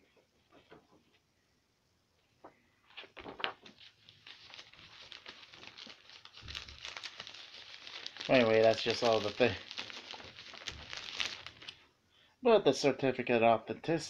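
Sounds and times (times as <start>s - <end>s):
packaging crinkling and rustling: 2.9s - 11.8s.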